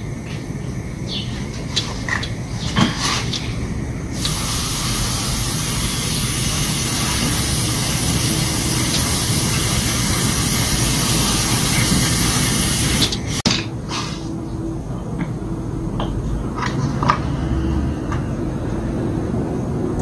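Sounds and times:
aerosol spray hissing: 4.2s - 13.4s.

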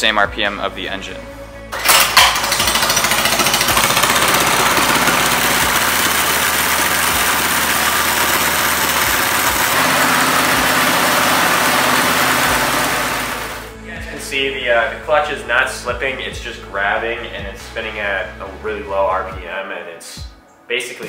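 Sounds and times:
small engine idling: 1.8s - 13.7s.

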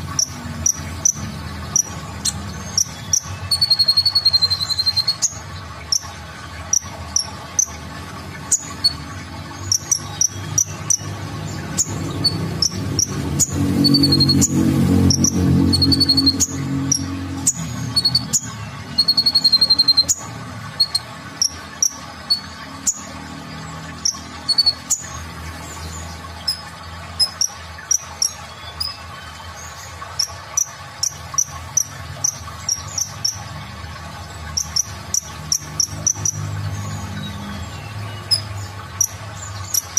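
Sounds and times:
bird singing high thin chirps: 0.2s - 6.1s, 8.4s - 23.1s.

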